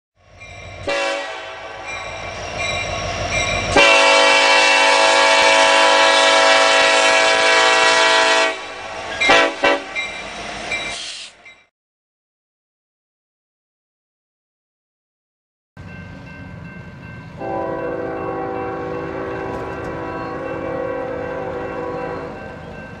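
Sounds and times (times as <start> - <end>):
locomotive air horn: 0.8 - 1.9, 3.7 - 10.0, 17.4 - 22.6.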